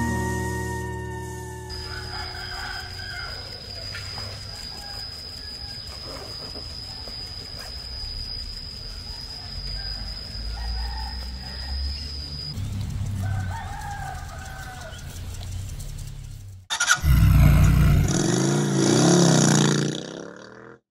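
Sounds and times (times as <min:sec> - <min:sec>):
rooster crowing: 0:00.0 - 0:06.0, 0:09.1 - 0:12.1, 0:13.2 - 0:15.1, 0:16.7 - 0:18.4
wavering growling tone: 0:17.0 - 0:20.8.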